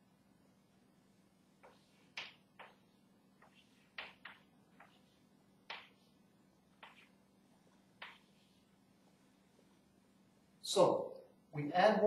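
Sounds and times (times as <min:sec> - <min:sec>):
faint steady hum: 0:00.0 - 0:12.0
chalk scratching on blackboard: 0:01.6 - 0:02.8, 0:03.4 - 0:06.2, 0:06.8 - 0:07.2, 0:08.0 - 0:08.7.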